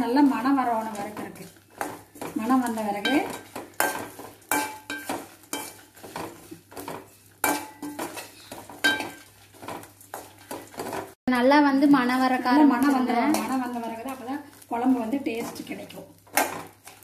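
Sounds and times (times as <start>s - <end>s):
metal spoon knocking pan: 0.0s - 11.1s.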